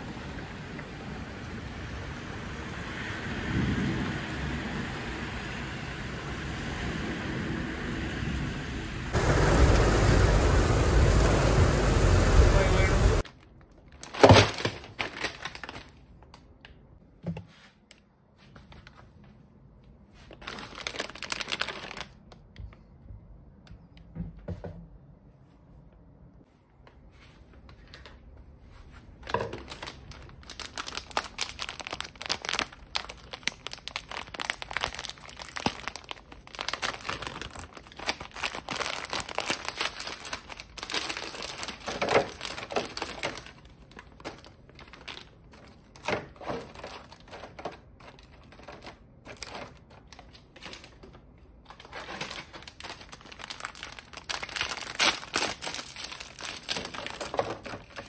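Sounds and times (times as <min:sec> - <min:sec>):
plastic and foil wrappers crinkling: 0:13.2 - 0:16.5, 0:20.2 - 0:22.6, 0:29.2 - 0:58.0.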